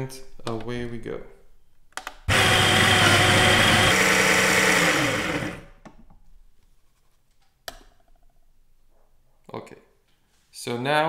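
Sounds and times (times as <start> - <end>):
coffee grinder motor whirring: 2.3 - 5.7.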